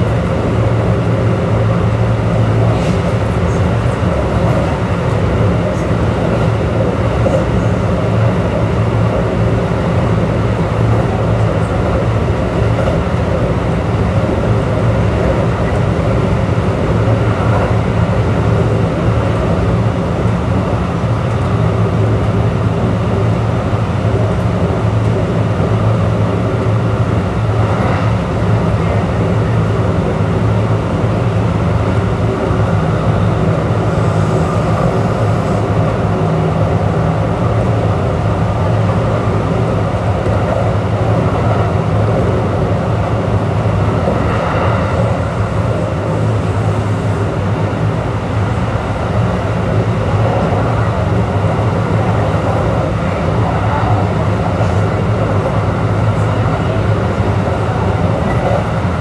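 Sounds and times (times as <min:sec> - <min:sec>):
air conditioning: 0:00.0 - 0:59.0
train hum: 0:00.0 - 0:59.0
train wheels rumbling on rail: 0:00.0 - 0:59.0.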